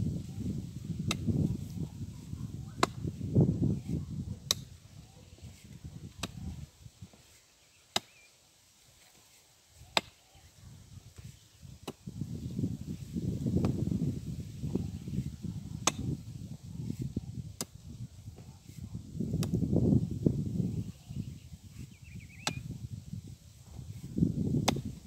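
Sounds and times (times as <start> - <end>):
scraping and rustling earth: 0.0 - 25.0
hoe striking rocky soil: 15.8 - 16.2, 24.6 - 25.0.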